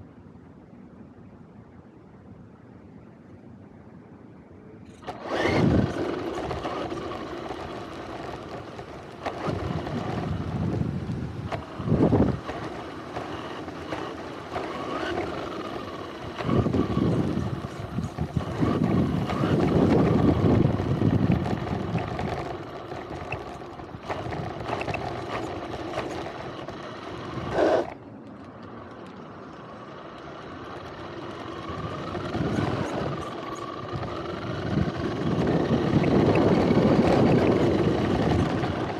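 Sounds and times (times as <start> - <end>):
rc car motor whine: 4.9 - 28.0, 28.6 - 38.9
tyres on gravel: 4.9 - 38.9
wind rush: 9.4 - 12.5, 16.2 - 22.6, 31.7 - 38.9.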